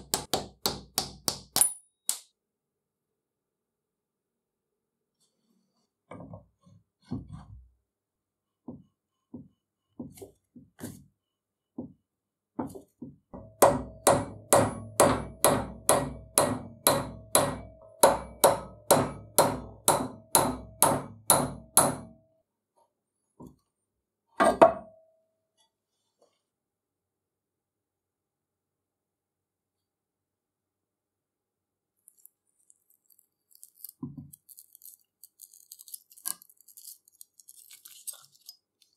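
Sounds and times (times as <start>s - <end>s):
hammer striking metal punch: 0.0s - 2.2s, 13.4s - 22.2s.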